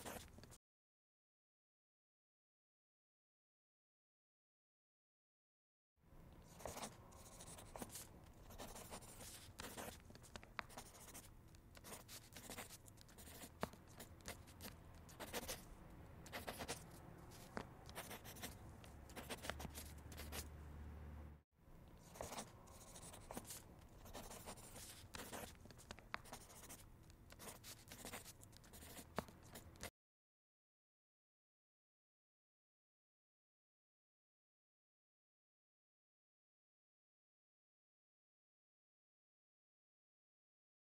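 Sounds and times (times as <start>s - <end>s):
pen scratching on paper: 0.0s - 0.6s, 6.4s - 20.6s, 22.0s - 29.9s.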